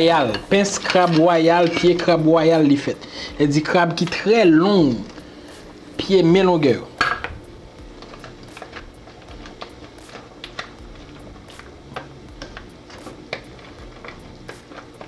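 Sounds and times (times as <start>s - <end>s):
spoon stirring in metal pot: 0.0s - 2.7s, 6.7s - 15.0s
steady low hum: 0.0s - 15.0s.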